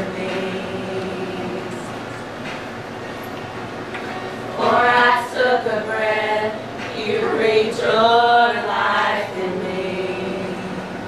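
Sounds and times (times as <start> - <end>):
women singing unaccompanied: 0.0 - 2.1, 4.5 - 11.0.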